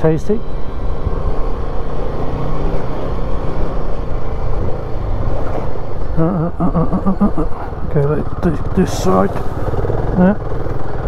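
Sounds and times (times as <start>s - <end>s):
tyres rumbling on gravel: 2.6s - 11.0s
motorcycle engine running: 6.7s - 11.0s.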